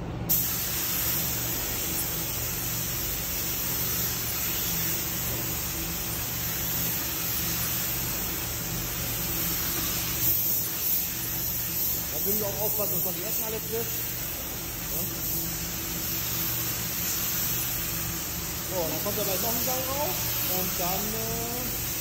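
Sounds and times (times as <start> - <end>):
steady low hum: 0.0 - 22.0
spray gun hissing: 0.3 - 22.0.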